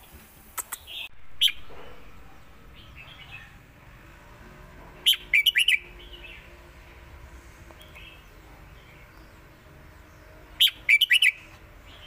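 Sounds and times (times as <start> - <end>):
bird singing sharp notes: 0.6 - 3.6, 5.0 - 6.5, 10.6 - 12.0.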